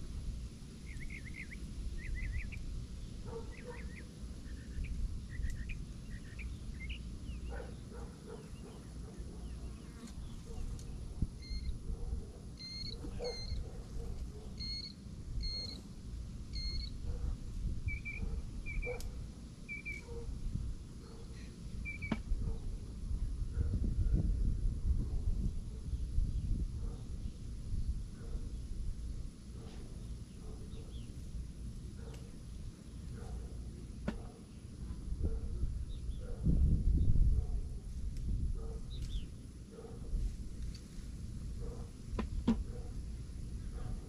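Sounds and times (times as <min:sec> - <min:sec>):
low wind rumble on microphone: 0:00.0 - 0:09.4, 0:10.2 - 0:14.6, 0:15.2 - 0:32.1, 0:33.1 - 0:44.0
small birds chirping: 0:00.7 - 0:22.8, 0:29.7 - 0:34.8, 0:35.8 - 0:36.4, 0:38.8 - 0:39.5.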